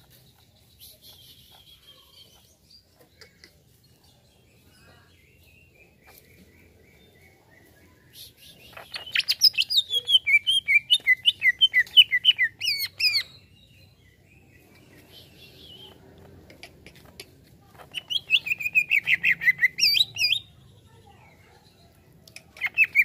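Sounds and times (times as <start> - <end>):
bird singing sharp chirps: 17.9 - 20.5.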